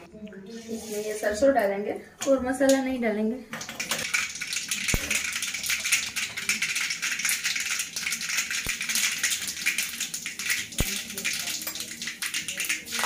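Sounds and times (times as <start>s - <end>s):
mustard seeds popping in oil: 3.5s - 13.0s
oil sizzling: 3.5s - 13.0s.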